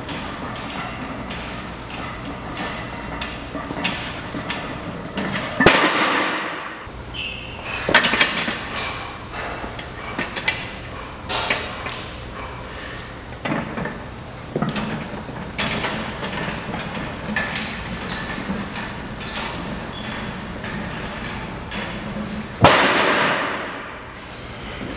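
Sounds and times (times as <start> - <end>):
metal knocks and clanks: 0.0 - 6.9.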